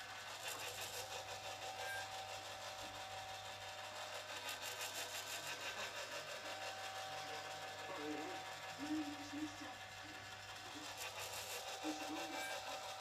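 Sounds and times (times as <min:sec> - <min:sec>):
mechanical whirring: 0:00.0 - 0:13.0
constant hum: 0:02.5 - 0:13.0.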